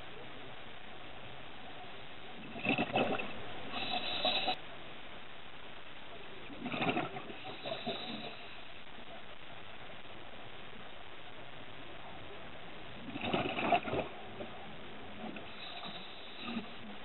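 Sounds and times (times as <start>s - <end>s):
steady hiss: 0.0s - 17.0s
bubbling underwater: 2.4s - 4.5s, 6.5s - 8.4s, 13.0s - 16.9s
scuba regulator breathing: 3.7s - 4.6s, 7.3s - 8.8s, 15.4s - 17.0s.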